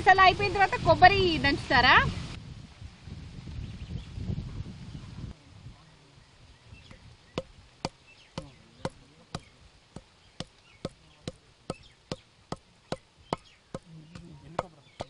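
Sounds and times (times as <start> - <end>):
pestle pounding in stone mortar: 7.4 - 15.0.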